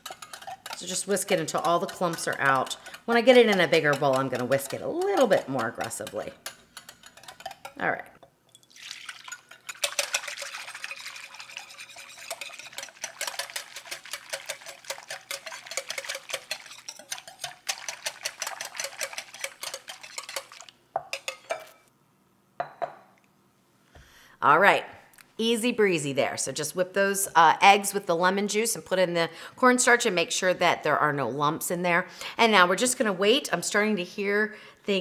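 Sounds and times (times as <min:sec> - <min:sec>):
whisk clicking against glass bowl: 0:00.0 - 0:07.8, 0:08.6 - 0:21.7
whisk taps: 0:00.0 - 0:07.8, 0:09.1 - 0:21.7
liquid pouring into bowl: 0:08.5 - 0:20.8.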